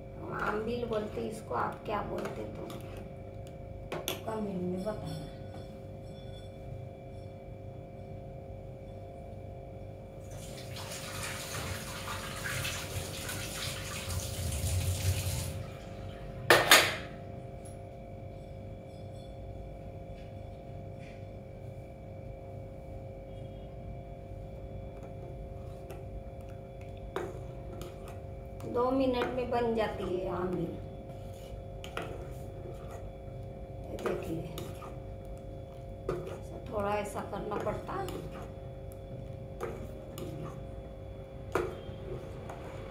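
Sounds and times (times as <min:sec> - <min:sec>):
steady hum: 0:00.0 - 0:10.8, 0:14.1 - 0:42.9
water tap running: 0:10.3 - 0:15.6.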